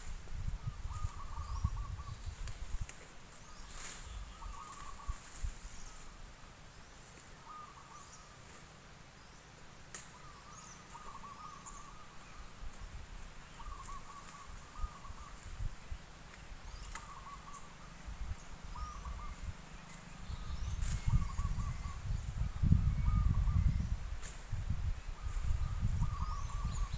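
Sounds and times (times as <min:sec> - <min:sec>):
bird warbling call: 0:00.7 - 0:02.4, 0:03.4 - 0:06.1, 0:07.4 - 0:08.4, 0:10.1 - 0:12.5, 0:13.4 - 0:15.5, 0:16.6 - 0:18.0, 0:18.6 - 0:23.9, 0:25.1 - 0:26.9.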